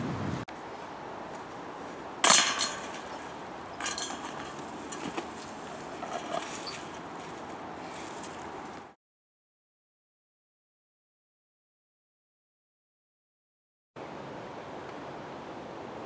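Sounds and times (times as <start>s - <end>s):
metal chains jangling: 2.2s - 7.5s.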